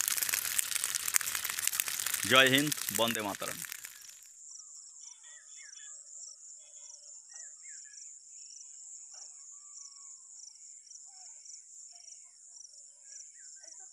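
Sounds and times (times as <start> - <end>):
crickets trilling: 0.0 - 4.3.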